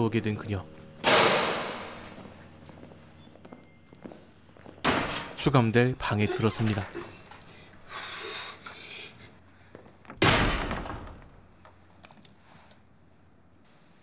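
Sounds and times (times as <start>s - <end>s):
heavy door banging shut: 1.0s - 2.2s, 4.8s - 5.4s, 10.2s - 11.4s.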